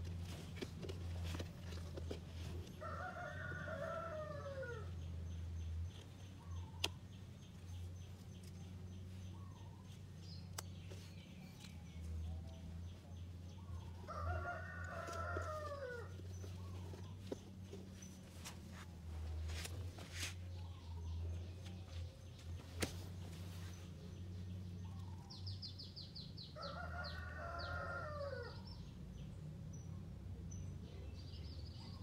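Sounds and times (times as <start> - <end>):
rooster crowing: 2.8 - 4.9, 14.1 - 16.1, 26.6 - 28.6.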